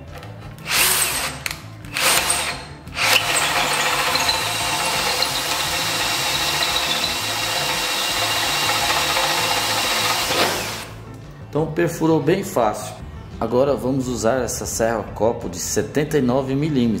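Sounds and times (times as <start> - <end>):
hole saw cutting wood: 0.6 - 10.9
cordless drill motor whine: 0.7 - 10.9.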